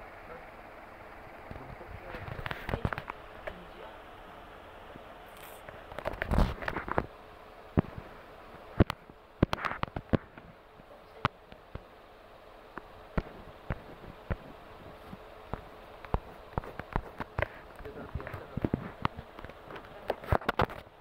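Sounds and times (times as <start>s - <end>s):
low background hiss: 0.0s - 21.0s
sharp clicks and light knocks: 1.5s - 3.6s, 8.8s - 11.9s, 12.7s - 21.0s.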